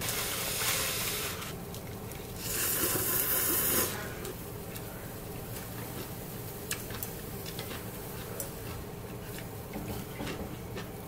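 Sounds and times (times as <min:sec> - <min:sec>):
low background hum: 0:00.0 - 0:11.0
chopsticks and utensils tapping: 0:06.7 - 0:10.9.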